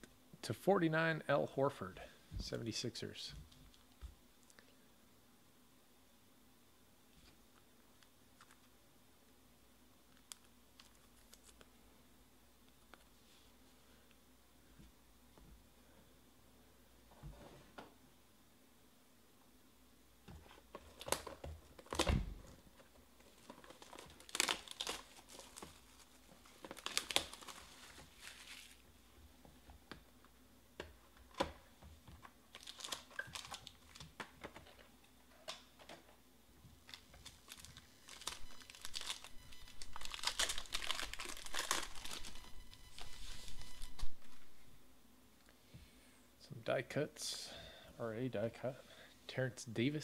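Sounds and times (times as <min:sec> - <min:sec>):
pack wrapper tearing: 0:10.1 - 0:11.7, 0:23.3 - 0:28.8, 0:32.5 - 0:34.1, 0:36.8 - 0:42.4
cardboard clicks and crinkles: 0:20.4 - 0:28.8, 0:30.8 - 0:36.2, 0:36.8 - 0:44.5.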